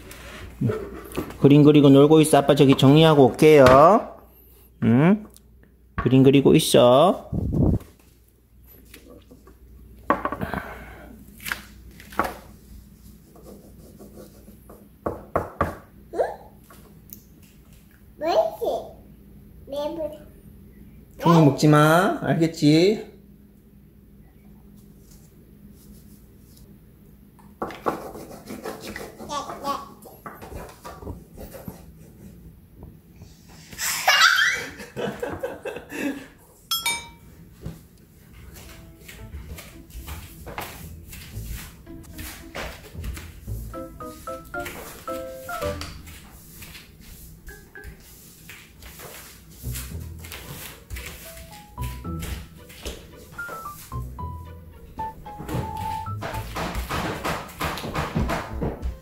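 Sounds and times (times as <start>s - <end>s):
crayons scraping on paper: 27.8s - 29.7s
baby squealing and laughing: 33.8s - 34.9s.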